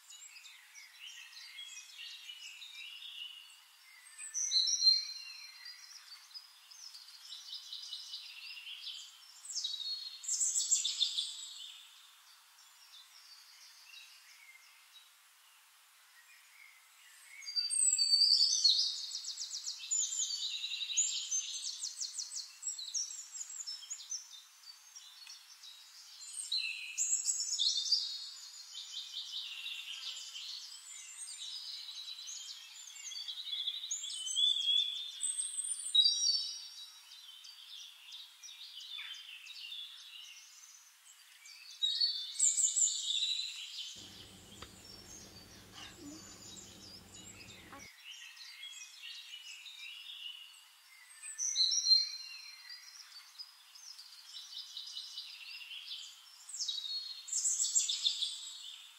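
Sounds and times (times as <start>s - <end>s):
songbirds chirping and trilling: 44.0s - 47.9s.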